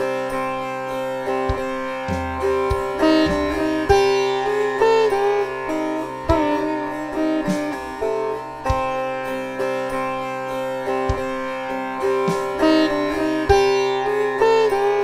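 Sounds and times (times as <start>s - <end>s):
plucked string melody: 0.0s - 15.0s
low drum strokes: 1.5s - 4.3s.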